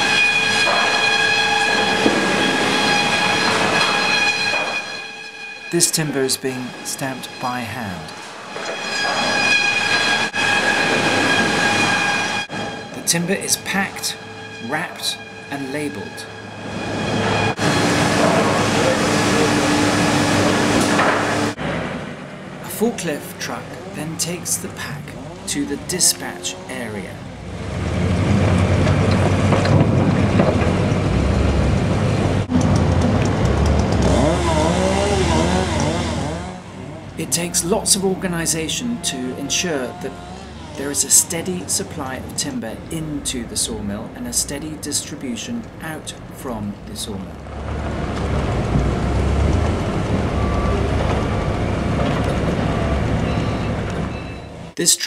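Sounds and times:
forklift engine rumbling and revving: 7.8 - 44.9, 45.6 - 54.8.

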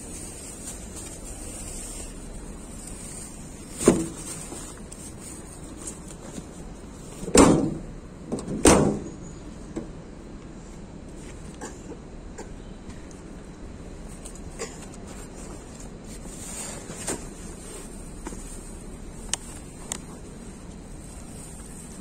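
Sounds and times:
background hiss: 0.0 - 8.2.

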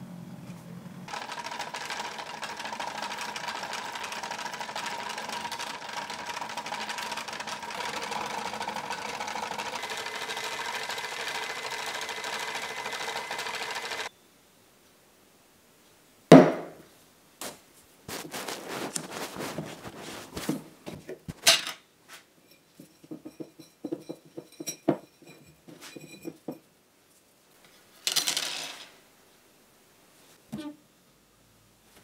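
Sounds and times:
rustling and clinks: 18.2 - 26.7.

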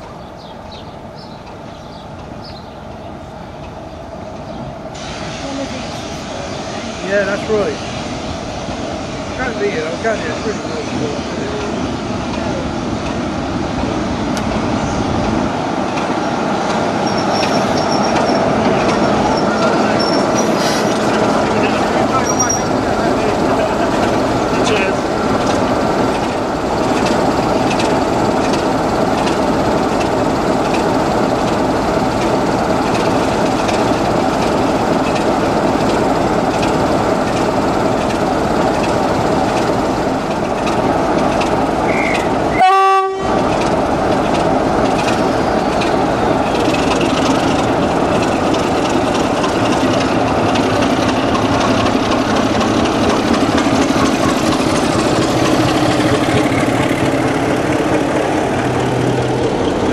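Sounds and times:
diesel locomotive engine running: 0.0 - 59.9
locomotive horn toot: 41.9 - 43.4.

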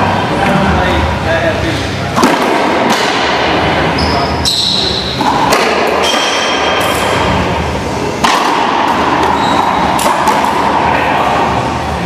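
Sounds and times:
ball smacking off racquets and walls: 8.2 - 10.8.

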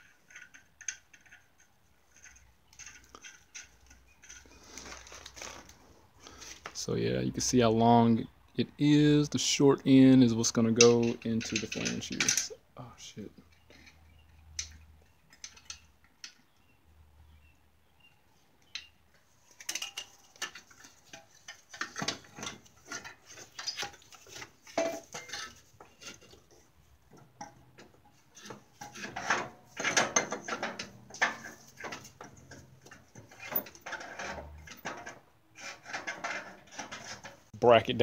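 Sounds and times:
metal clinking and scraping: 0.0 - 6.6, 10.6 - 12.6, 13.4 - 16.8, 18.6 - 37.5.

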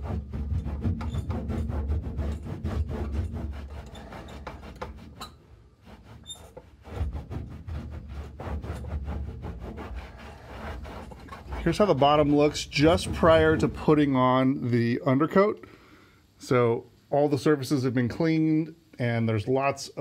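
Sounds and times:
cloth rag scrubbing textured surface: 0.0 - 5.2, 5.8 - 14.4.

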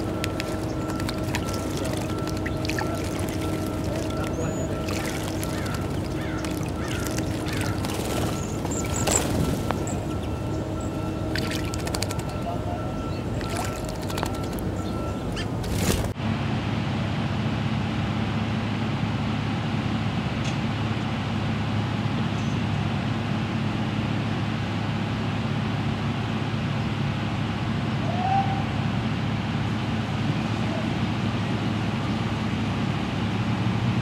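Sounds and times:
traffic rumble: 0.0 - 16.2
mechanical hum: 0.0 - 34.0.

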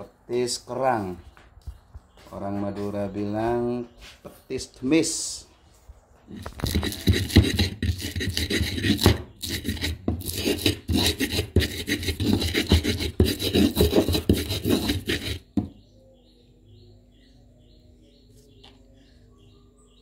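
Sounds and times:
pestle grinding in stone mortar: 6.3 - 15.8.

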